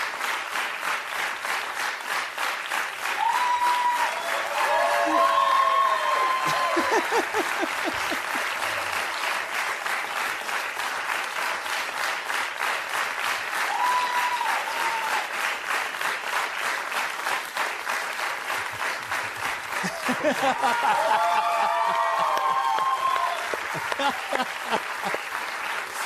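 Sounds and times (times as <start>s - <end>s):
audience applauding: 0.0s - 26.0s.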